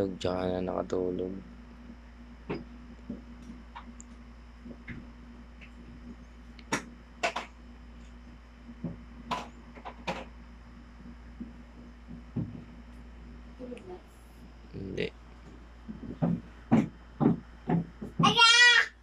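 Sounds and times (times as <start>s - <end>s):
low hum: 0.0s - 18.4s.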